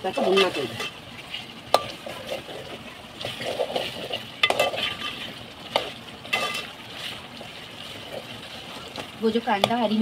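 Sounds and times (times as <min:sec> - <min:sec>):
ladle scraping metal pot: 0:00.0 - 0:10.0
ladle clinking against pot: 0:05.8 - 0:06.7.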